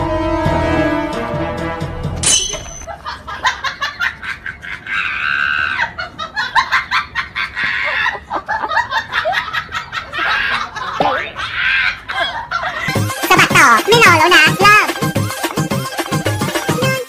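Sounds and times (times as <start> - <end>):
woman laughing hard: 2.9 - 13.0.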